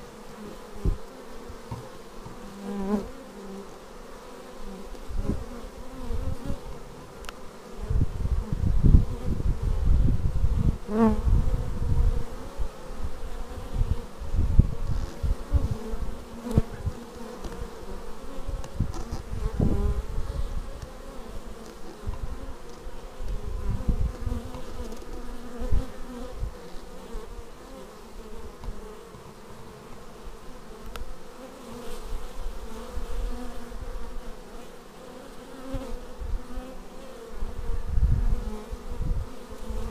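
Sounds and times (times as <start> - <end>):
bee flying past microphone: 0.0 - 39.9
bees buzzing: 0.0 - 39.9.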